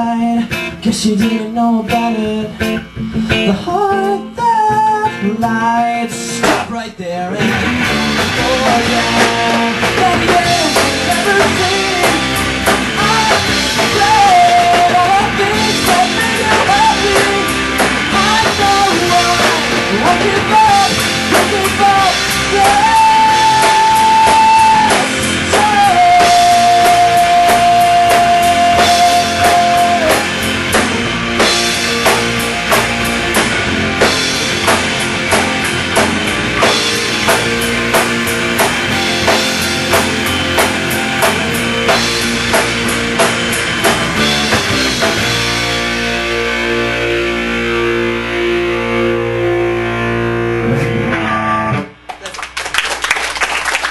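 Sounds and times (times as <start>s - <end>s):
person singing: 0.0s - 30.4s
drum kit: 0.0s - 53.9s
guitar: 0.0s - 53.9s.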